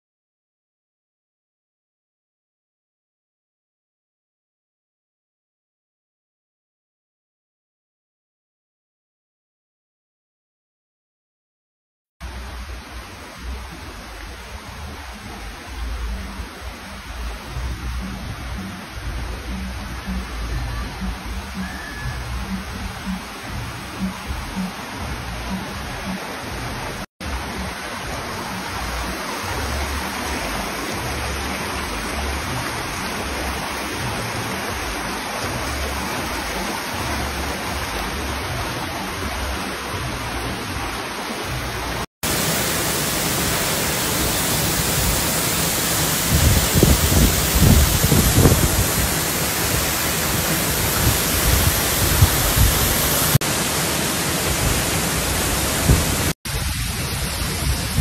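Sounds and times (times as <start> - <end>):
rocky stream rushing: 12.2 - 58.0
waterfall pouring into pool: 25.8 - 58.0.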